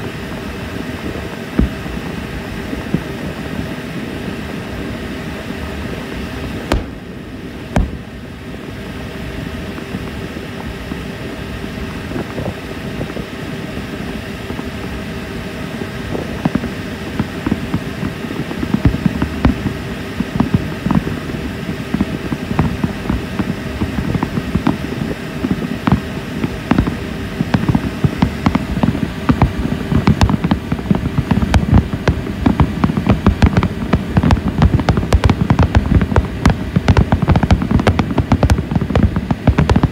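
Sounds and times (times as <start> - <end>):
boat engine hum: 0.0 - 39.9
fireworks popping and crackling: 0.0 - 39.9
sharp firework bangs: 1.5 - 2.1, 6.6 - 8.4, 25.8 - 39.9.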